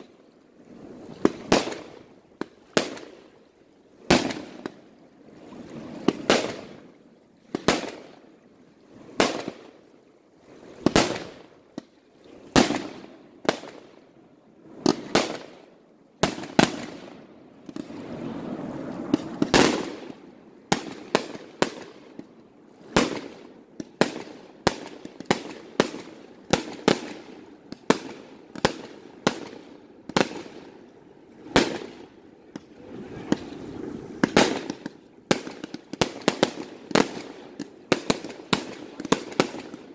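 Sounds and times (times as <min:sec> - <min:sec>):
fireworks bangs: 0:09.2 - 0:09.6, 0:10.8 - 0:11.4, 0:14.8 - 0:15.6, 0:16.2 - 0:22.2, 0:22.9 - 0:30.7, 0:31.4 - 0:39.9
steady rushing noise: 0:17.4 - 0:20.3.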